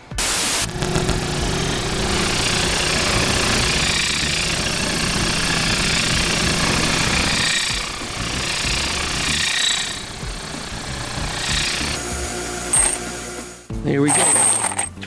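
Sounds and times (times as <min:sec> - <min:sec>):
motorized wire wheel buffing bolts: 0:00.8 - 0:14.6.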